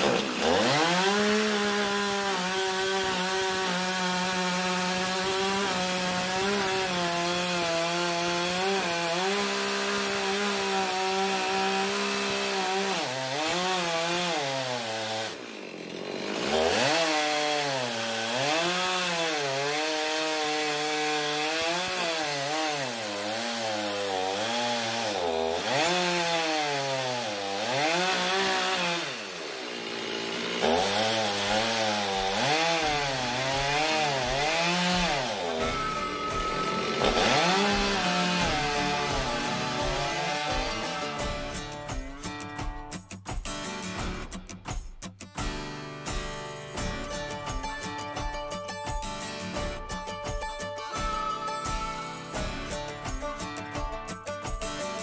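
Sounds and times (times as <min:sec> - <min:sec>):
chainsaw cutting log at full throttle: 0:00.0 - 0:42.6.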